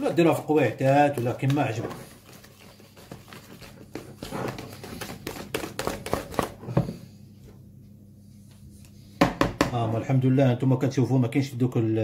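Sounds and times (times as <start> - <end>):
hand whisk beating batter: 0.0 - 6.8.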